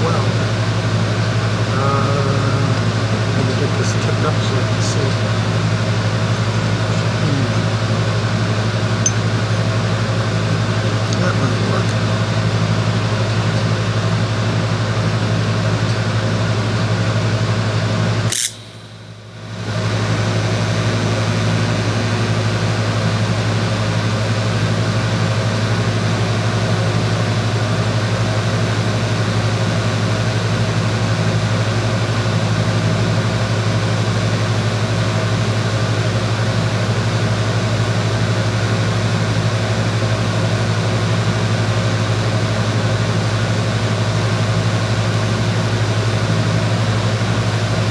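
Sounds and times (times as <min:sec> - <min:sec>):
arc welding hum and hiss: 0:00.0 - 0:47.9
welder click: 0:18.3 - 0:19.2.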